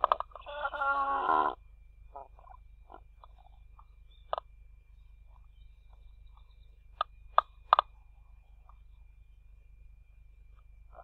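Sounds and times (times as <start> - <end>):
stork short abrupt calls: 0.0 - 3.5.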